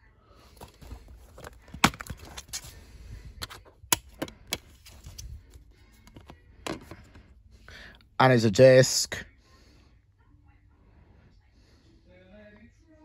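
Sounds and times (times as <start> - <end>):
soft handling rustle: 0.4 - 3.7, 4.6 - 7.2.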